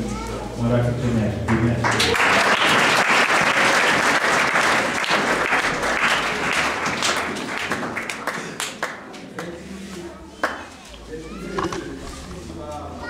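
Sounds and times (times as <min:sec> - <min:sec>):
audience applauding: 0:01.5 - 0:09.5.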